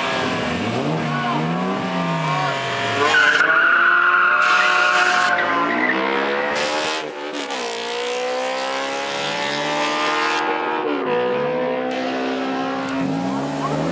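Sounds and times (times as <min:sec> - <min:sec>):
car engines accelerating hard: 0:00.0 - 0:13.9
tyres squealing: 0:03.0 - 0:06.5.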